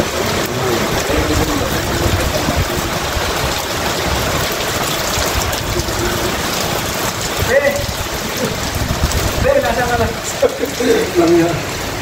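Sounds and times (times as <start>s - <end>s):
heavy rain on concrete and metal: 0.0s - 12.0s.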